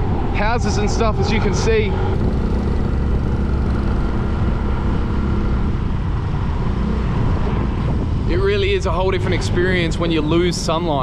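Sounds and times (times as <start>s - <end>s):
wind and road noise: 0.0s - 11.0s
motorbike engine running: 1.6s - 6.3s.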